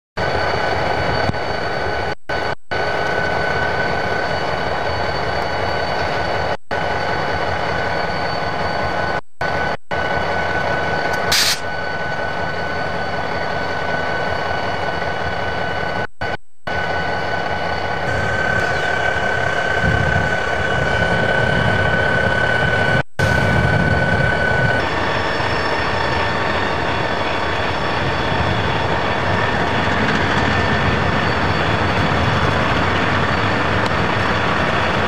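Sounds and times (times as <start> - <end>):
diesel locomotive engine: 0.2 - 35.0
high whine: 0.2 - 35.0
short hiss: 11.2 - 11.6.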